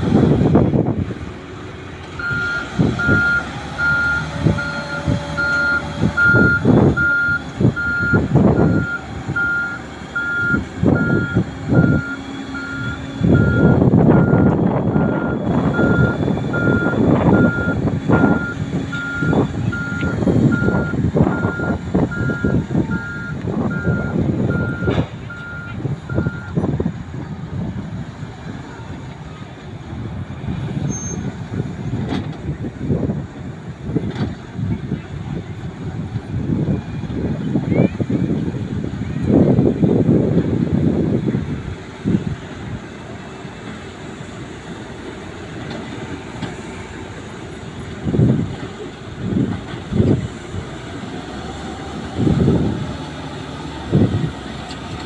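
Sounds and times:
engine rumble: 0.0s - 55.0s
reversing alarm beeping: 2.2s - 26.6s.

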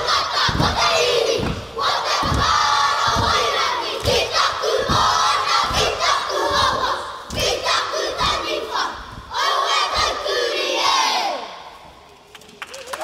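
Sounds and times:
slaps and stamps thumping: 0.3s - 7.7s.

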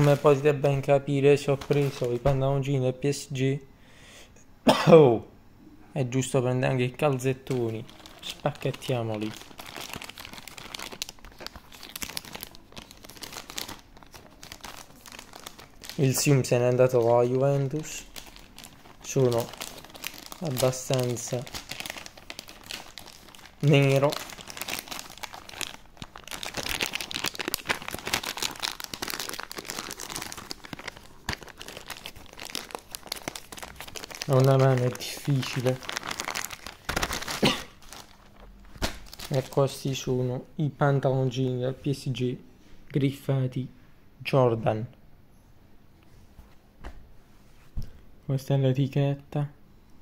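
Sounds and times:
plastic bag crinkling: 0.0s - 2.7s, 7.0s - 40.1s.

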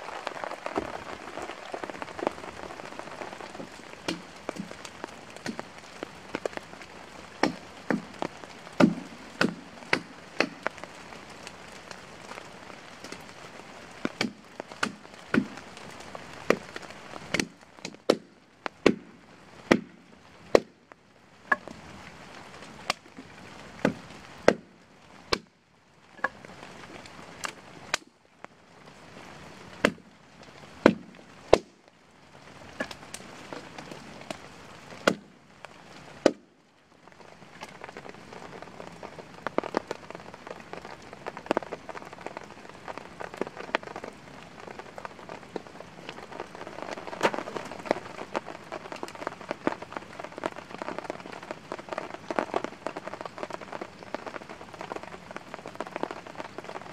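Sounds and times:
steady rain: 0.0s - 56.9s
blade chopping branches: 7.4s - 8.2s, 8.8s - 10.7s, 14.1s - 15.6s.

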